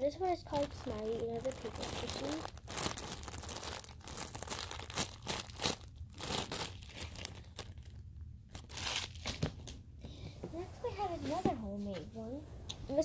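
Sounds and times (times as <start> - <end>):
plastic wrapping crinkling: 0.2 - 9.6.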